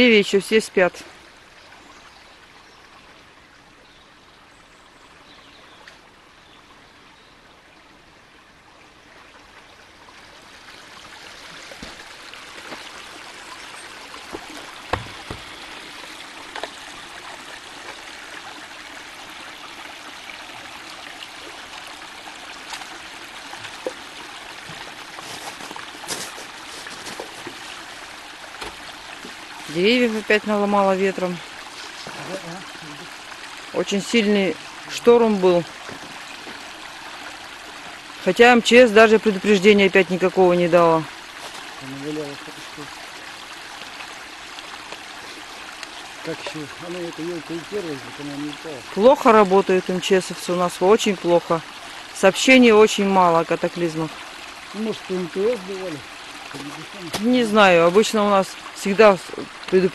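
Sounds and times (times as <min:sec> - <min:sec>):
stream trickling: 0:00.0 - 0:59.9
faint knocks: 0:14.3 - 0:15.7.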